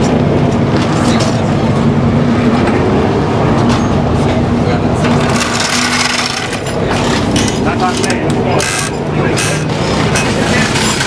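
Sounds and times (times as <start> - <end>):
race car engines droning: 0.0 - 11.0.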